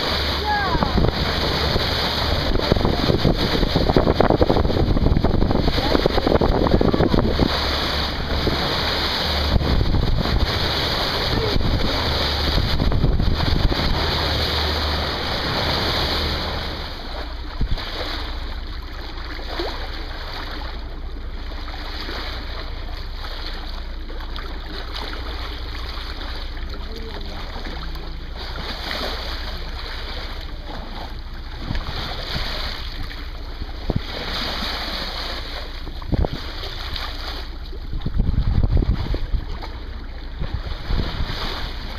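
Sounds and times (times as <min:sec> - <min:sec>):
wind buffeting microphone: 0:00.0 - 0:18.8, 0:27.5 - 0:41.9
water rushing past boat hull: 0:00.0 - 0:41.9.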